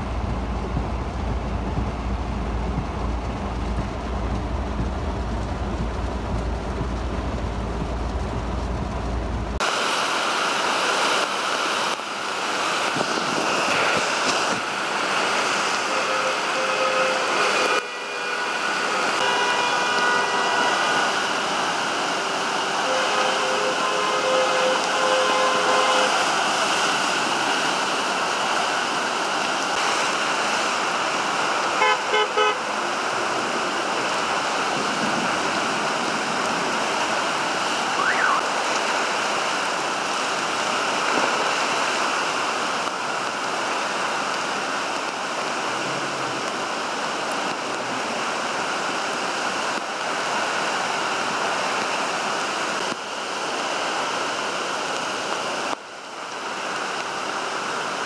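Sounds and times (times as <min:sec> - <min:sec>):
heavy rain hissing: 0:00.0 - 0:58.0
traffic: 0:00.0 - 0:58.0
water on flooded street: 0:00.0 - 0:58.0
car horn toots: 0:15.8 - 0:21.1, 0:22.8 - 0:26.3, 0:31.8 - 0:32.7.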